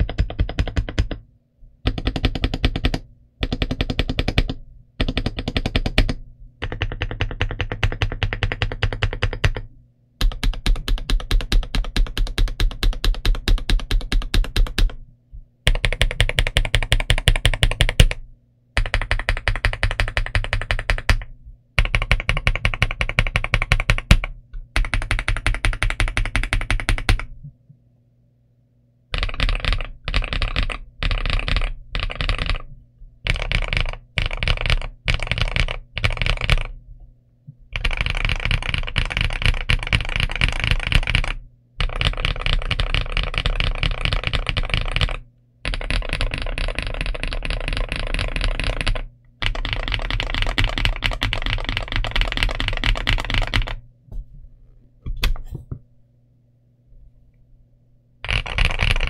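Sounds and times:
mechanical keyboard typing: 0.0s - 1.2s, 1.8s - 15.0s, 15.7s - 18.2s, 18.8s - 27.3s, 29.1s - 36.8s, 37.8s - 53.8s, 58.2s - 59.0s.

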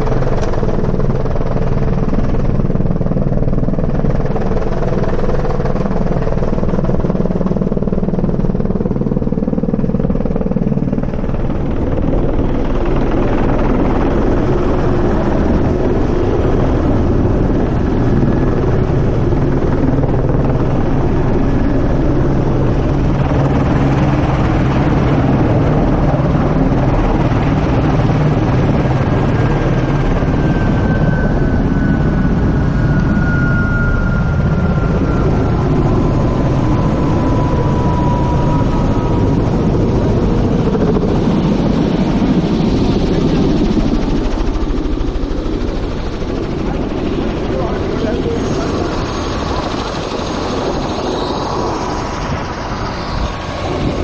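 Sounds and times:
helicopter engine and rotor: 0.0s - 54.0s
faint whine falling in pitch: 29.3s - 40.2s.

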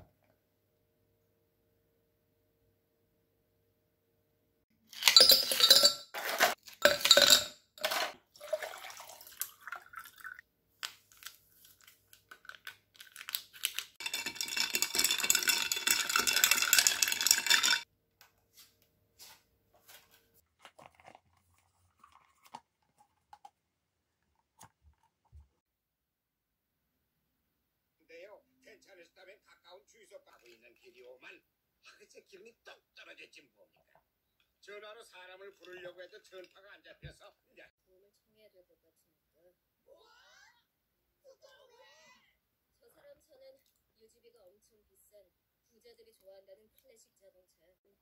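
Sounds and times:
ice clinking in a glass: 5.0s - 10.4s, 14.0s - 17.8s.

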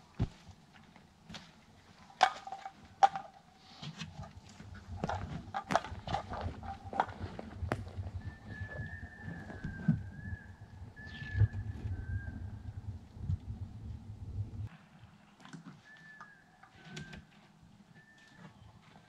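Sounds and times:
faint thin whistle: 8.2s - 12.7s, 15.7s - 17.3s, 17.9s - 19.0s.

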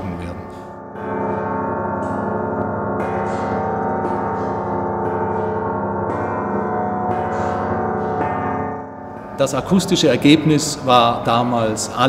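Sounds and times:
plate bells ringing: 0.0s - 12.0s.

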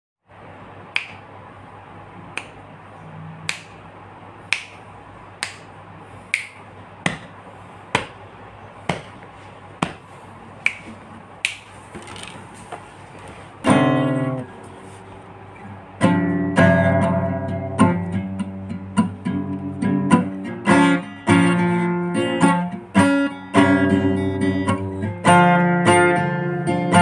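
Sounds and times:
faint steady hum and hiss: 0.2s - 27.0s
finger snaps: 0.9s - 1.3s, 2.3s - 2.7s, 3.4s - 3.8s, 4.5s - 5.7s, 6.3s - 7.3s, 10.6s - 11.7s.

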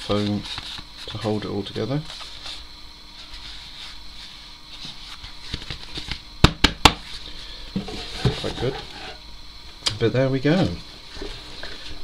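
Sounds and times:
cardboard rustling and scraping: 0.0s - 6.2s, 7.8s - 9.2s.

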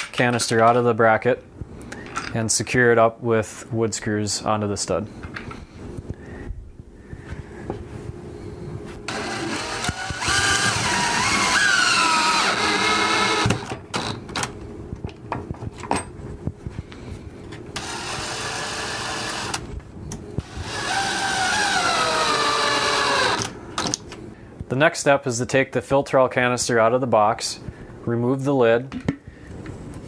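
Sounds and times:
cordless drill driving screws: 9.1s - 14.1s, 17.8s - 19.6s, 20.4s - 23.5s.

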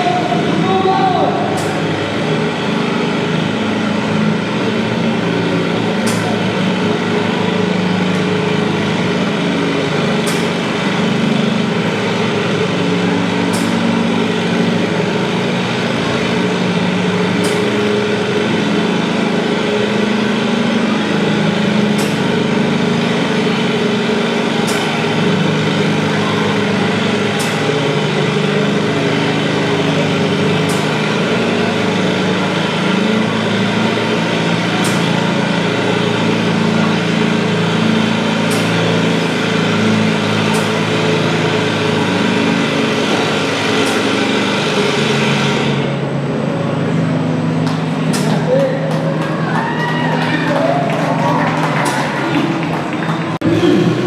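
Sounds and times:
tractor engine running: 0.0s - 54.0s.

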